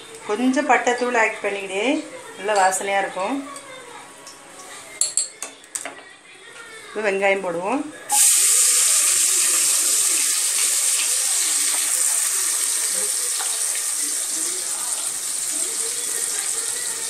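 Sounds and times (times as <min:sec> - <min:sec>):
onions sizzling in hot oil: 0:08.1 - 0:17.0.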